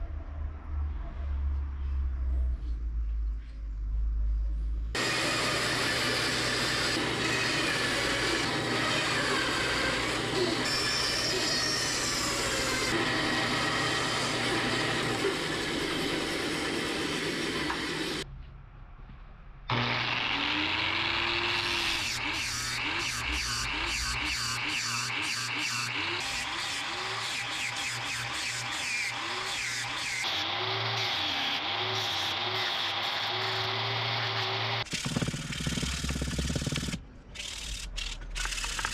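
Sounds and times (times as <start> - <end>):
angle grinder running: 5.0 - 18.2, 19.7 - 37.0
bandsaw cutting wood: 5.0 - 18.2, 19.7 - 37.8.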